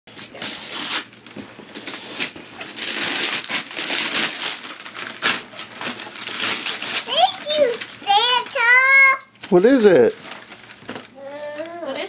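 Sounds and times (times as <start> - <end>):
wrapping paper tearing: 0.1 - 12.0
paper crinkling: 0.2 - 12.0.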